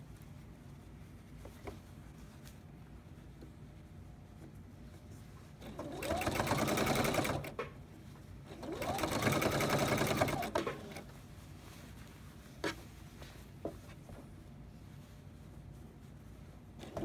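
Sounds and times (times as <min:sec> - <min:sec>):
sewing machine stitching: 0:05.6 - 0:07.7, 0:08.5 - 0:11.0.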